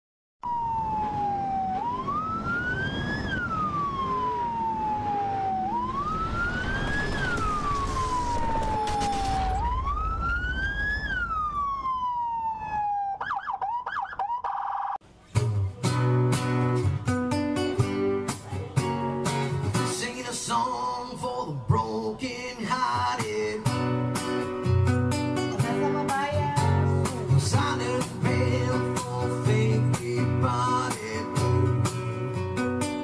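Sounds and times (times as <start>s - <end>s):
emergency vehicle siren wailing: 0.4s - 15.0s.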